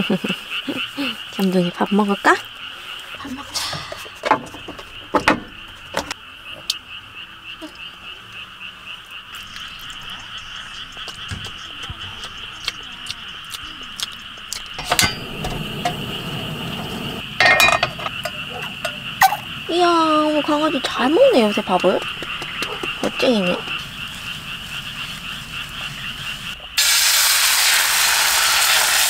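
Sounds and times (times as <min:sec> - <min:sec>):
frogs calling with pulsing trill: 0:00.0 - 0:27.0
gas burner hissing: 0:03.1 - 0:04.8, 0:14.8 - 0:29.0
gas stove clicking alight: 0:14.8 - 0:19.4.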